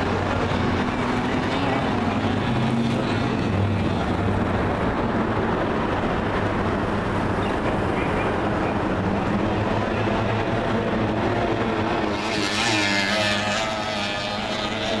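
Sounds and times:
powerboat engines droning: 0.0s - 15.0s.

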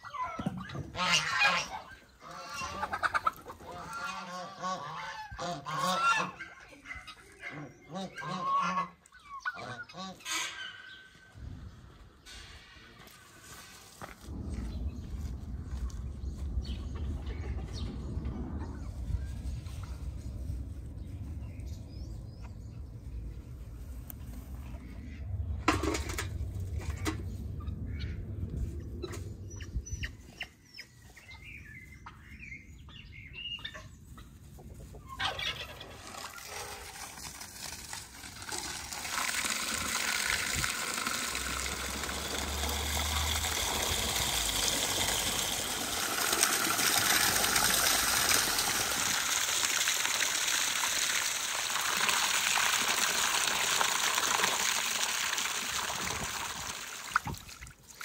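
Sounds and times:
water gushing into basin: 36.0s - 58.0s.

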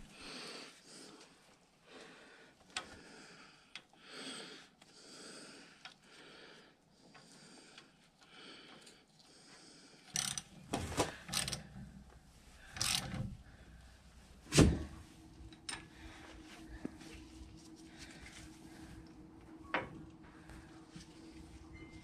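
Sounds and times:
heavy breathing: 0.0s - 14.4s, 15.8s - 19.2s
wrench clicking and clanking: 10.1s - 10.5s, 11.3s - 11.6s, 12.8s - 13.2s.

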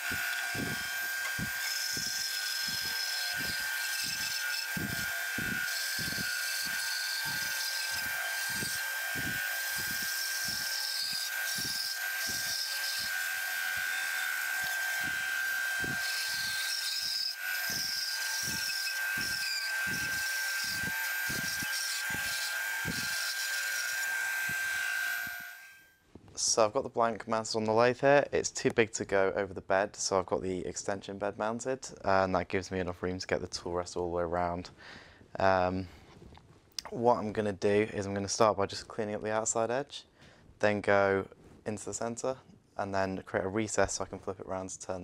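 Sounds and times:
bandsaw cutting wood: 0.0s - 25.7s.

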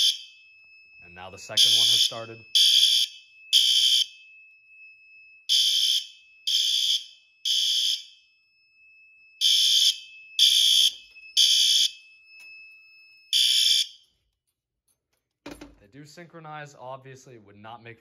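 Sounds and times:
fire alarm horn blasts: 0.0s - 0.4s, 1.0s - 4.3s, 5.4s - 8.3s, 9.2s - 12.2s, 13.3s - 14.1s.

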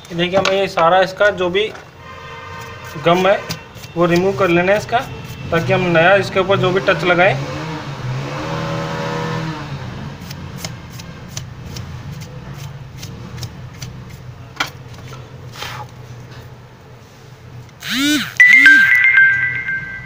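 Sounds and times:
passing vehicle engine: 5.6s - 10.2s.

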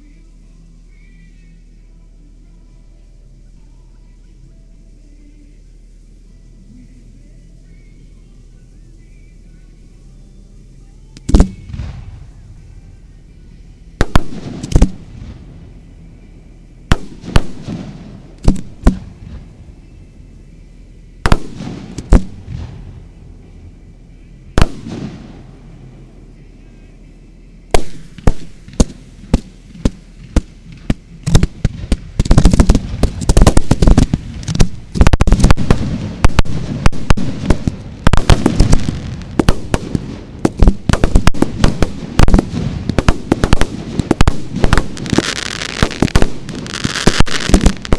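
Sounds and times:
fireworks bangs: 11.2s - 12.3s, 14.0s - 15.5s, 16.9s - 19.6s, 21.2s - 23.0s, 24.5s - 25.4s, 27.7s - 47.9s.

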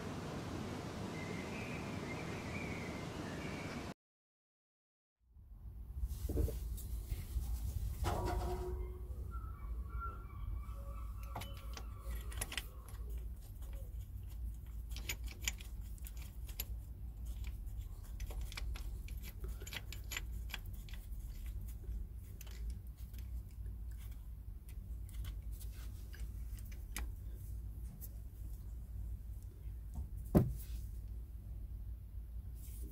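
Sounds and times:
metallic clicks and clinks: 14.6s - 21.5s.

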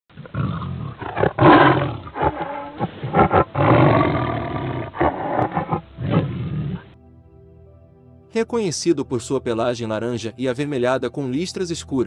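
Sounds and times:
tiger roaring: 0.1s - 7.0s.

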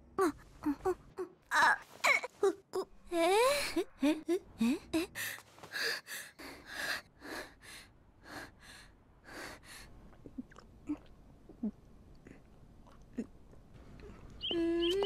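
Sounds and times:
girl panting: 3.2s - 9.9s
girl gulping a drink: 10.0s - 14.2s.

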